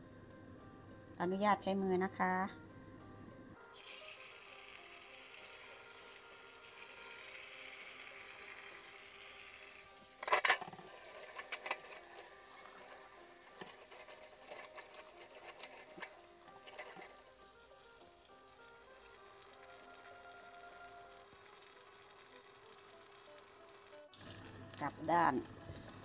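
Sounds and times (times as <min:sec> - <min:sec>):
food deep-frying in oil: 0:03.7 - 0:26.0
oil spattering and crackling: 0:10.2 - 0:17.2.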